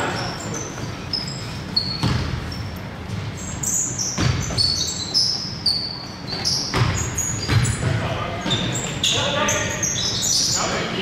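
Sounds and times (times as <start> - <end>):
sneakers squeaking on court: 0.0 - 11.0.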